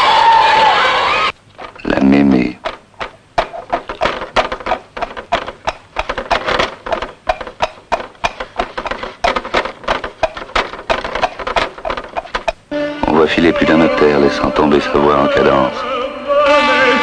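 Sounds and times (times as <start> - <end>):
fast irregular clicks: 1.5 - 12.6.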